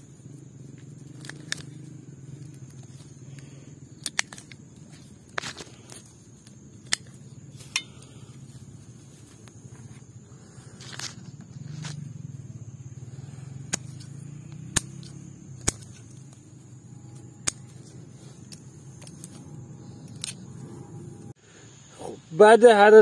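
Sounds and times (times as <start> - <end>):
low steady rumble: 0.0 - 21.4
pruning shears snipping: 13.6 - 20.6.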